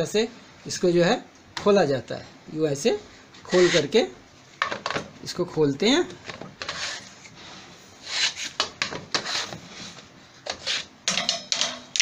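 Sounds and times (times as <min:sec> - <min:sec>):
plastic scraping on plastic: 0:06.1 - 0:10.9.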